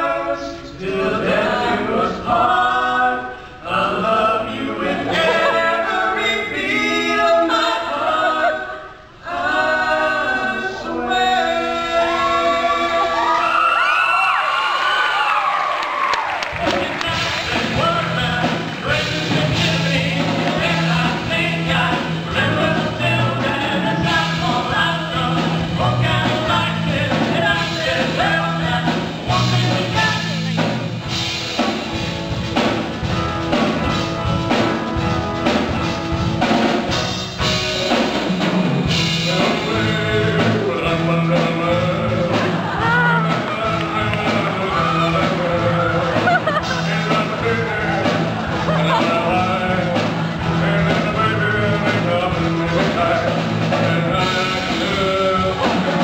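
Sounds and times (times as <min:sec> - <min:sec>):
band playing a song: 0:00.0 - 0:13.8, 0:14.5 - 0:56.0
lead singer: 0:00.0 - 0:31.7, 0:37.9 - 0:56.0
steady drum beat: 0:16.3 - 0:56.0
bass line: 0:16.5 - 0:56.0.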